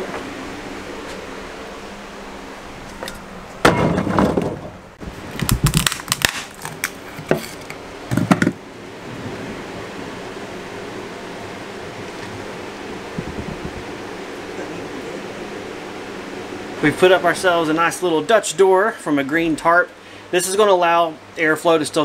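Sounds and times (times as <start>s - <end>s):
wood cracking and crunching: 5.3s - 7.7s.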